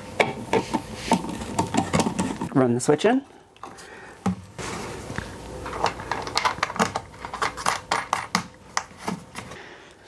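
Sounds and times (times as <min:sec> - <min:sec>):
hardware clicking and rattling: 0:05.7 - 0:08.9.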